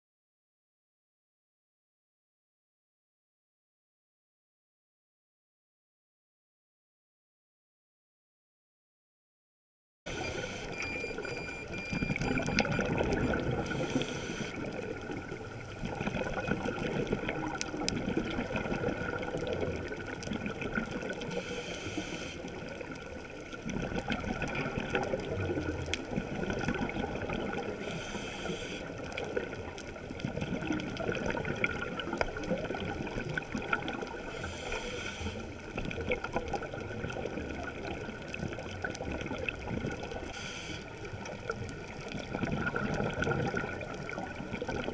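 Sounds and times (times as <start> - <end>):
diver's regulator breathing underwater: 10.1 - 15.0, 21.2 - 22.8, 27.2 - 29.4, 34.0 - 35.6, 40.2 - 41.1
bubbling and crackling: 10.1 - 44.9
short hiss of regulator: 27.8 - 28.9, 34.4 - 35.4, 40.3 - 40.8.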